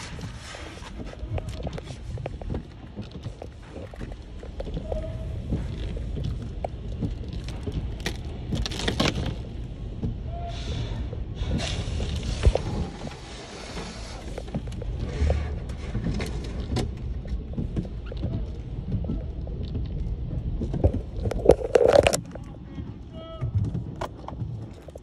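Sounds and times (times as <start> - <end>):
water spray hissing on car: 0.0 - 2.2, 10.5 - 14.7.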